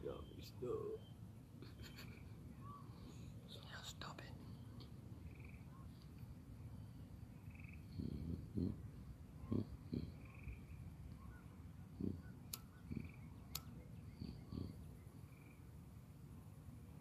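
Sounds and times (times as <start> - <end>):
trilled animal calls: 7.4 - 15.7
sharp clicks: 12.4 - 12.8, 13.4 - 13.8.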